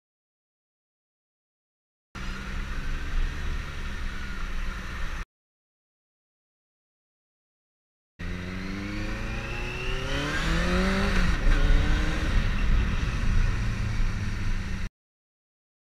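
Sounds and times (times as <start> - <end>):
wind and road noise: 2.2 - 5.2, 8.2 - 14.9
motorcycle engine accelerating: 8.2 - 14.9.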